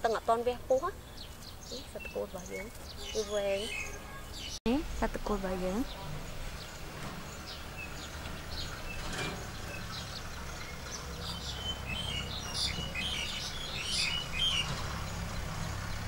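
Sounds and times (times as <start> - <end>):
small birds chirping: 0.0 - 16.0
low steady rumble: 4.7 - 16.0.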